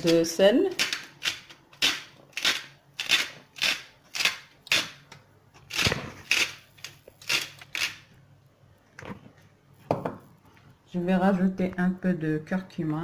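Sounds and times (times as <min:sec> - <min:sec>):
salt mill grinding: 0:00.8 - 0:05.0, 0:05.7 - 0:08.1.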